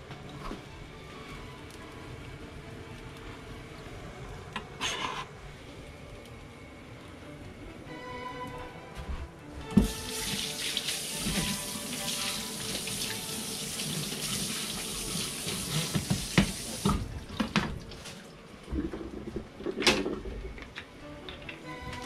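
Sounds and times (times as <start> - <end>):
tap water running into sink: 9.8 - 18.1.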